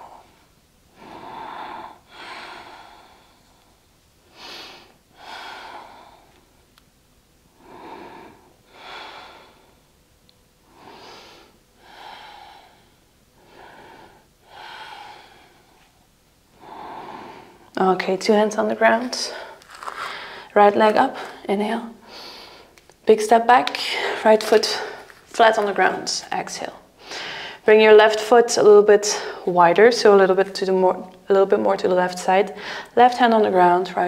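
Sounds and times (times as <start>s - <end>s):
woman breathing slowly: 0.0s - 6.8s, 7.5s - 10.0s, 10.6s - 17.8s, 18.8s - 22.8s, 23.8s - 25.3s, 26.9s - 27.7s, 32.6s - 33.0s.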